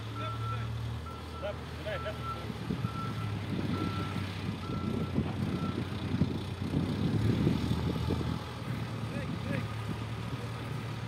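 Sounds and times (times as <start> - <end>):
diesel engine running: 0.0 - 11.0
reversing alarm beeping: 0.2 - 5.8.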